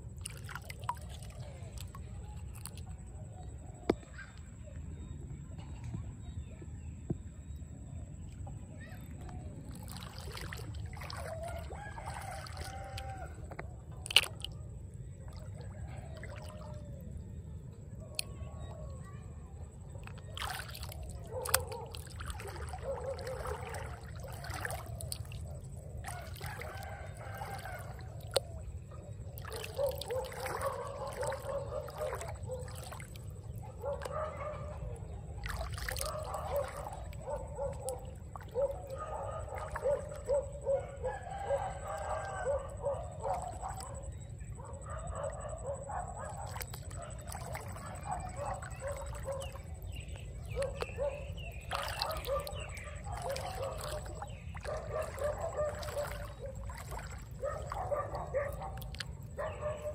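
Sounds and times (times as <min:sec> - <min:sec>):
hand splashing in water: 0:09.7 - 0:14.6, 0:20.0 - 0:28.7, 0:35.4 - 0:38.9, 0:51.6 - 0:57.8.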